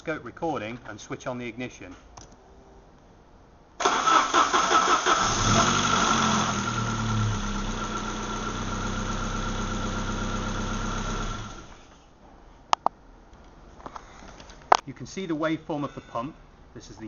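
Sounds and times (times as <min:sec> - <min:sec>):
starter motor cranking: 0:03.8 - 0:12.0
car engine idling: 0:03.9 - 0:12.0.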